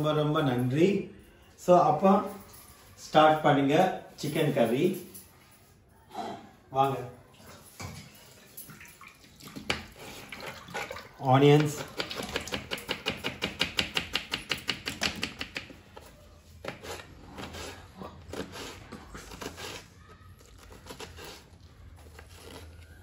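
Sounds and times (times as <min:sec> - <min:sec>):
knife chopping on wooden board: 0:11.7 - 0:15.7.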